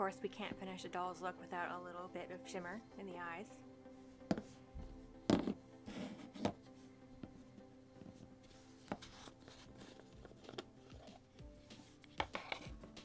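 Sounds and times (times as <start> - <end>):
small jars knocking and scraping: 5.3 - 5.6, 12.0 - 12.8.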